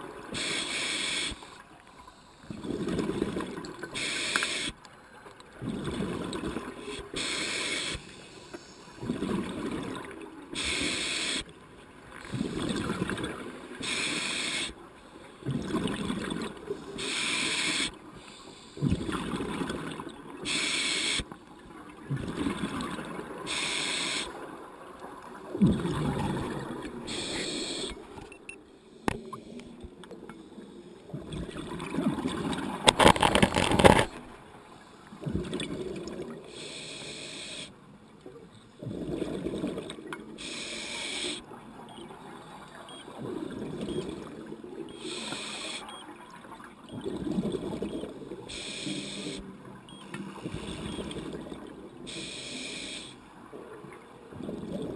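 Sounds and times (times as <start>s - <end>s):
regulator hiss on inhale: 0.4s - 2.5s, 4.0s - 4.8s, 6.9s - 9.0s, 10.6s - 11.5s, 13.8s - 14.8s, 16.8s - 18.9s, 20.4s - 21.3s, 23.5s - 24.4s, 27.1s - 28.0s, 36.5s - 37.8s, 40.4s - 41.5s, 45.0s - 45.9s, 48.5s - 49.5s, 52.1s - 53.2s.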